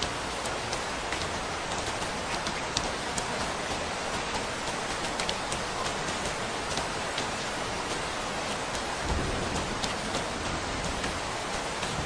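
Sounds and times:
rain falling: 0.0s - 12.0s
raindrop ticks: 0.0s - 12.0s.

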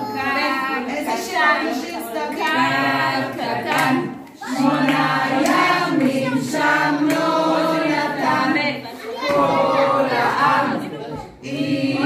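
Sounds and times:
group singing a song: 0.0s - 12.0s
hand claps: 3.7s - 6.4s, 7.0s - 7.4s.

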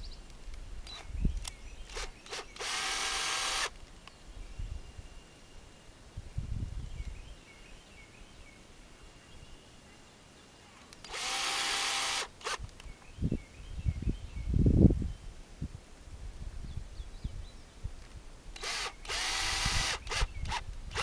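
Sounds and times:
cordless drill driving screw: 1.9s - 3.8s, 11.0s - 12.6s, 18.6s - 21.0s
faint bird chirps: 4.0s - 12.1s, 12.8s - 15.4s.

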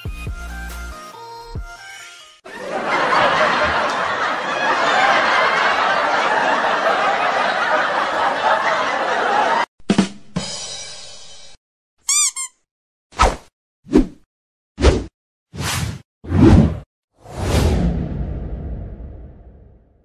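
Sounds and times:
background music: 0.0s - 2.4s
laugh track: 2.5s - 9.7s.

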